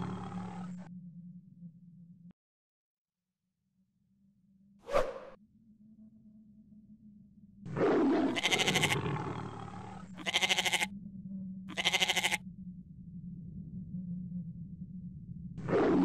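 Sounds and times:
low hum: 0.0s - 2.4s, 3.8s - 16.0s
animal bleating: 8.3s - 9.0s, 10.1s - 10.9s, 11.7s - 12.4s.

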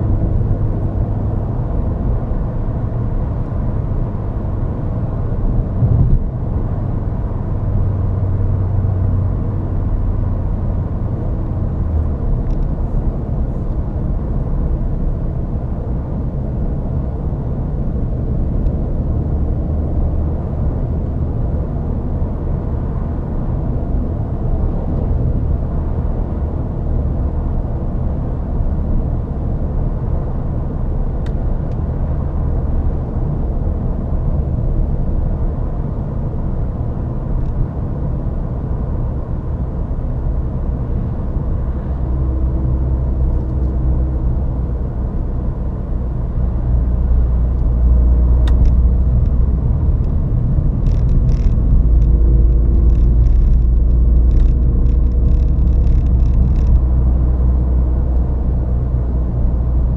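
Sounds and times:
car engine and road rumble: 0.0s - 59.9s.

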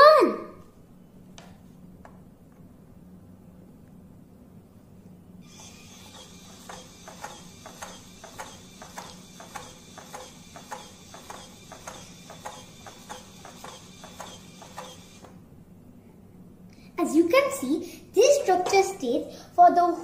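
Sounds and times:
motor whining: 5.4s - 15.4s.

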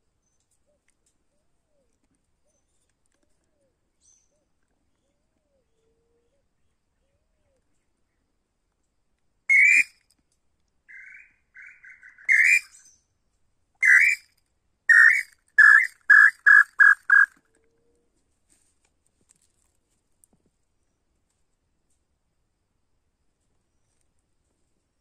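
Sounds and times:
bird whistling loud notes: 9.5s - 9.9s, 11.0s - 12.8s, 13.8s - 14.2s, 14.9s - 17.3s.

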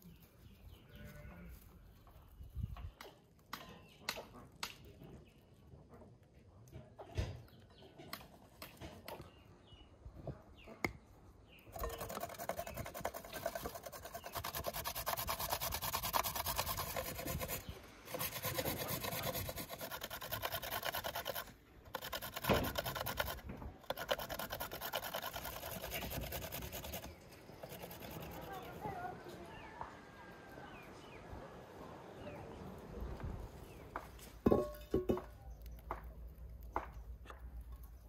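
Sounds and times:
carrot grated on metal grater: 11.8s - 28.6s.

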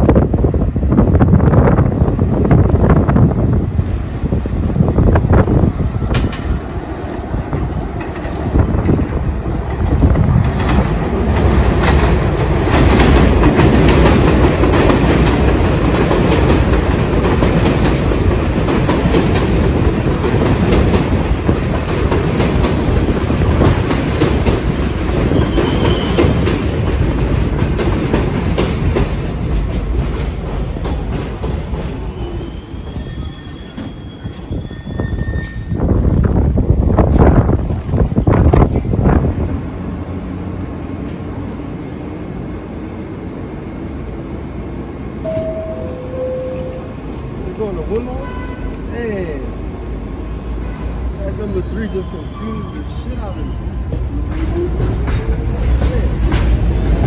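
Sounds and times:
high wheel squeals: 2.7s - 3.4s, 25.3s - 26.3s, 32.1s - 35.8s, 51.4s - 53.9s
train wheels clattering on rails: 3.8s - 34.6s, 53.8s - 57.0s.

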